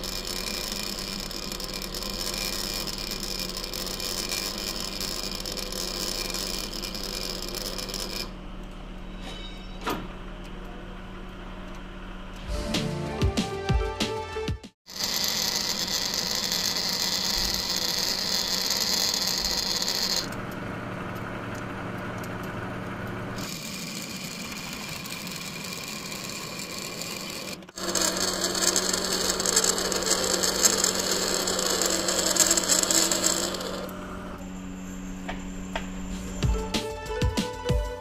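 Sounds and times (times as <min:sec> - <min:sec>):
lathe humming: 0:00.0 - 0:08.3, 0:14.9 - 0:20.4, 0:22.7 - 0:35.0
tool cutting threads into brass: 0:00.0 - 0:08.3, 0:14.9 - 0:20.4, 0:23.4 - 0:34.4.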